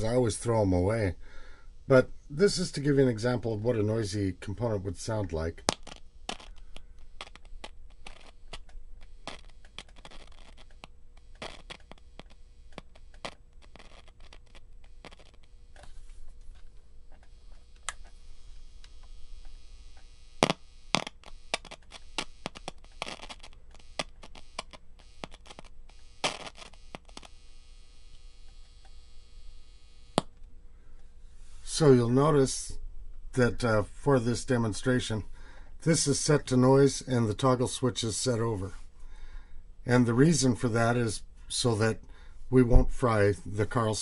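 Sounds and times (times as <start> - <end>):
steady speaker hum: 0.0 - 44.0
crackling and popping from speaker: 2.1 - 31.1.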